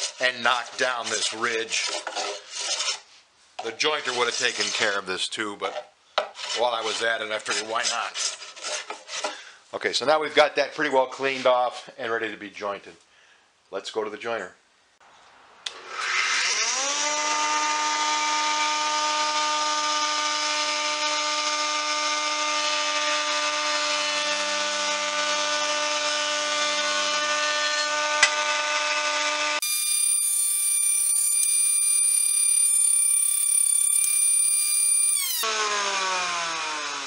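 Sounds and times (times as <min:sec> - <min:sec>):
jointer motor whine: 0:29.6 - 0:37.0.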